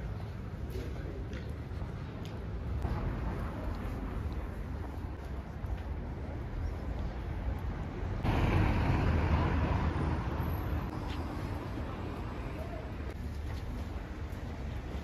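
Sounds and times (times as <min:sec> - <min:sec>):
distant traffic rumble: 0:00.0 - 0:15.0
loud rushing noise: 0:08.2 - 0:11.0.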